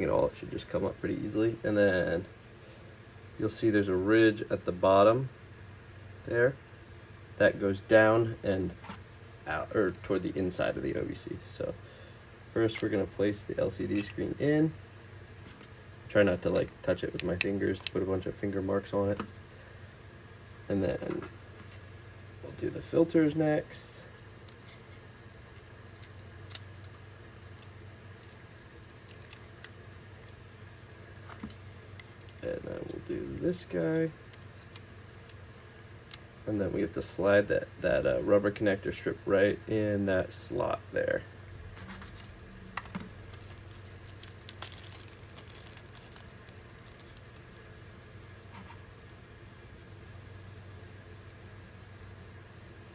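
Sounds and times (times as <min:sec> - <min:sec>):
low steady hum: 0:00.0 - 0:52.9
plastic bag crinkling: 0:41.9 - 0:47.6.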